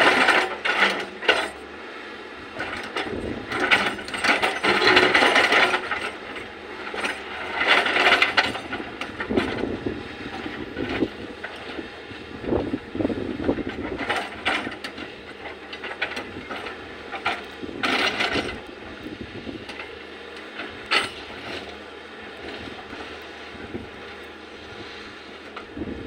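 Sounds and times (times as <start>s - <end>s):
excavator engine running: 0.0s - 26.0s.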